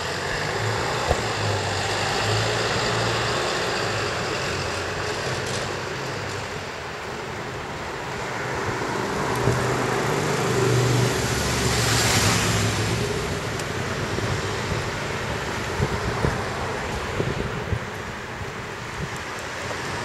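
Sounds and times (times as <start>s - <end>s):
vehicle passing by: 8.7s - 13.4s.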